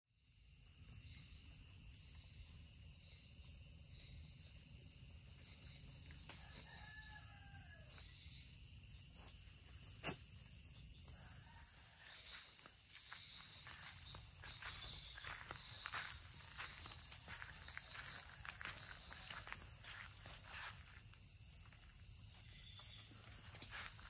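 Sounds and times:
crickets chirring: 0:00.1 - 0:24.0
distant rooster crowing: 0:06.2 - 0:08.3, 0:11.0 - 0:20.7
footsteps rustling in grass: 0:09.1 - 0:24.0.

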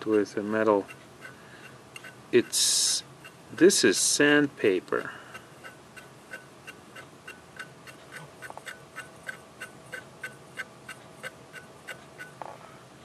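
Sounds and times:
metal tool ticking on platter: 0:00.0 - 0:03.8, 0:05.0 - 0:12.4.

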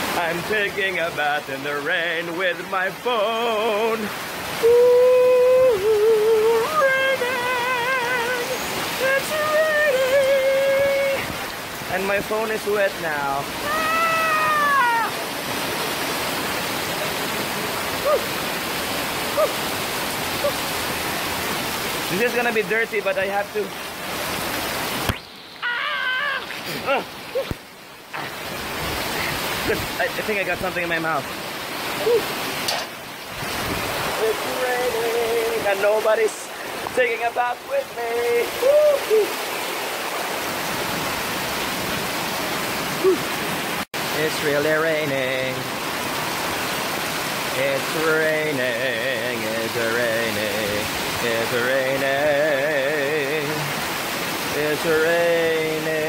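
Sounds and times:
heavy rain: 0:00.0 - 0:56.0
man yelling: 0:13.1 - 0:15.3, 0:25.6 - 0:27.5, 0:37.7 - 0:39.3
man's voice sliding sounds: 0:34.1 - 0:38.6, 0:54.6 - 0:56.0.

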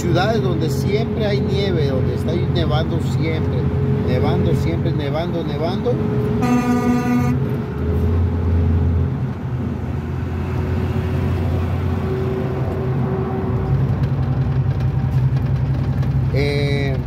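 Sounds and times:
car engine and road noise drone: 0:00.0 - 0:17.0.

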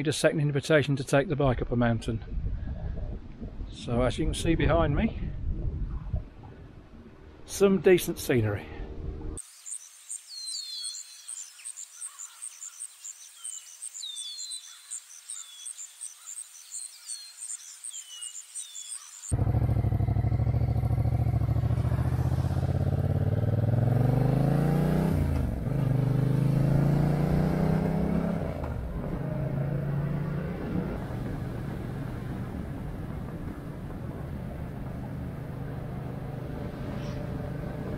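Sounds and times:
birds chirping: 0:09.4 - 0:22.1
motorcycle engine accelerating: 0:19.3 - 0:37.9.

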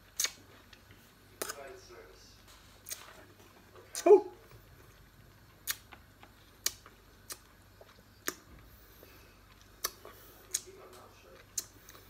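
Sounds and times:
sharp mouth clicks: 0:00.2 - 0:00.4, 0:05.6 - 0:06.0, 0:06.6 - 0:07.5, 0:08.2 - 0:08.4, 0:09.8 - 0:10.7, 0:11.6 - 0:12.0.

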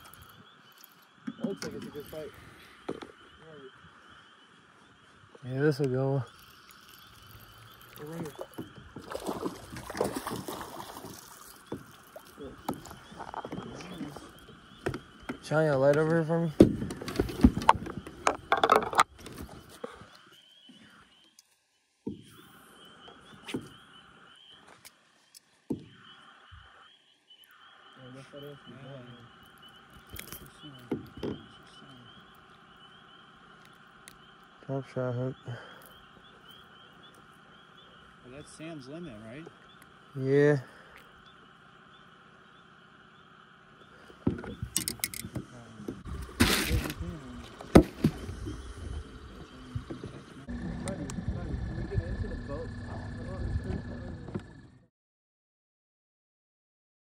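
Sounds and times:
frogs calling: 0:00.0 - 0:54.9
knocks and clatters on boat: 0:14.8 - 0:19.4.

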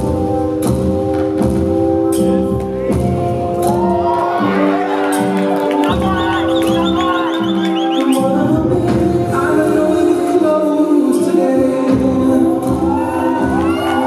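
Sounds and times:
music with held notes: 0:00.0 - 0:14.0
person singing: 0:02.9 - 0:14.0.

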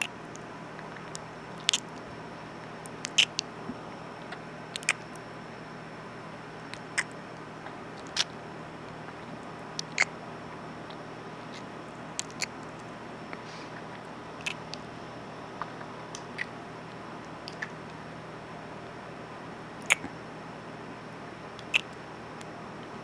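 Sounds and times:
lip smacks and mouth clicks: 0:00.0 - 0:02.1, 0:02.8 - 0:03.5, 0:04.2 - 0:05.2, 0:06.7 - 0:08.4, 0:09.1 - 0:10.1, 0:10.8 - 0:14.9, 0:15.6 - 0:16.6, 0:17.3 - 0:18.0, 0:19.8 - 0:20.2, 0:21.6 - 0:22.5
faint hiss: 0:13.2 - 0:16.6.

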